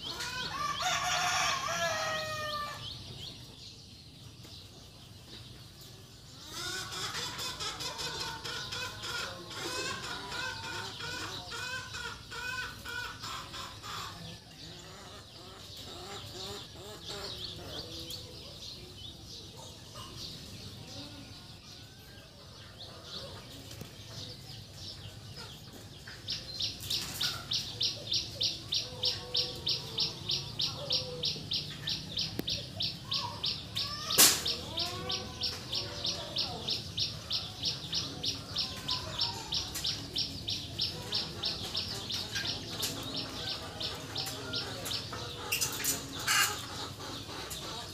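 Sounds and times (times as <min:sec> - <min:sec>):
birds chirping and clucking: 0:00.0 - 0:47.9
sharp knock: 0:34.1 - 0:34.6.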